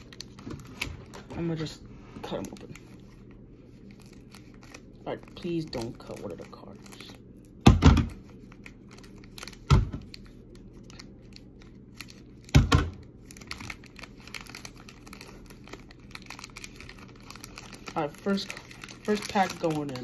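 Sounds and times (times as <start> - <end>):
wrapper crinkling: 0.0 - 20.0
scissors cutting wrapper: 13.1 - 20.0.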